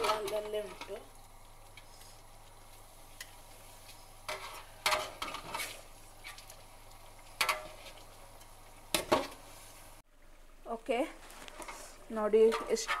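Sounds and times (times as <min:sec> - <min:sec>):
faint sizzle: 0:00.0 - 0:13.0
spatula scraping steel pot: 0:11.6 - 0:13.0.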